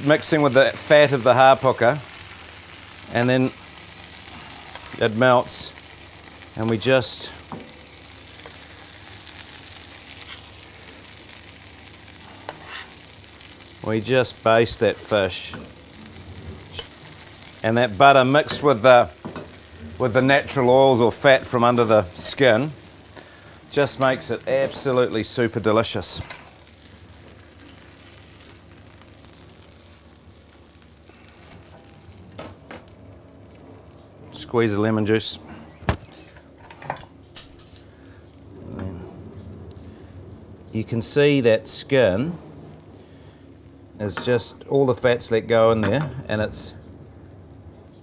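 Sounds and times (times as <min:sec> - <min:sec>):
fish frying in butter: 0:00.0 - 0:33.5.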